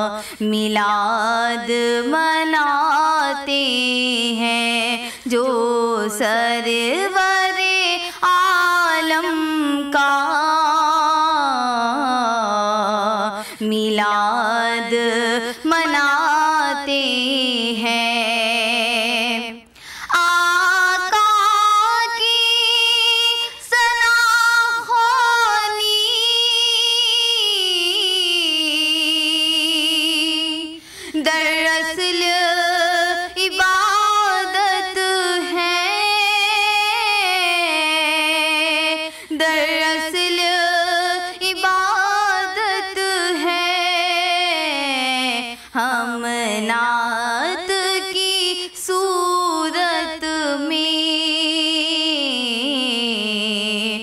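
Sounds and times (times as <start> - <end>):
woman singing into a microphone: 0.0 - 54.0.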